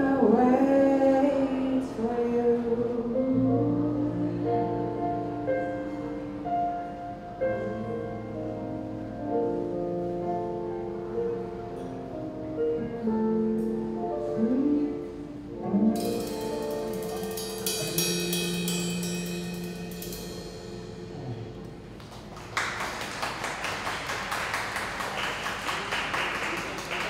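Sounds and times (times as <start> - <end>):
live band playing: 15.5 - 22.3
cymbal crash: 16.0 - 21.6
audience applause: 22.0 - 27.0.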